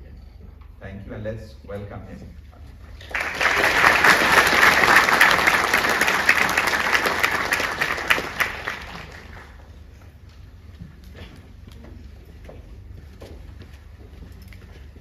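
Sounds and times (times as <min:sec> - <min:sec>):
audience applause: 0:02.9 - 0:09.9.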